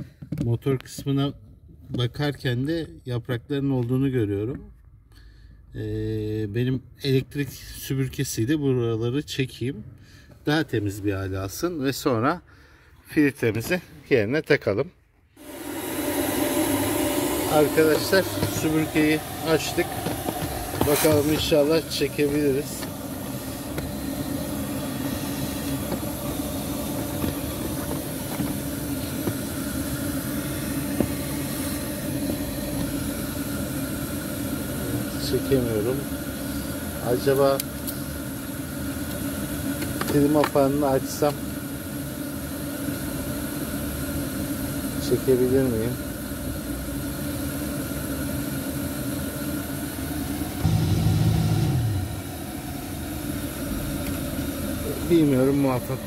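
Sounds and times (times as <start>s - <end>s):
handheld vacuum cleaner humming: 15.4s - 42.0s, 50.0s - 56.0s
deeper louder hum: 50.4s - 53.0s.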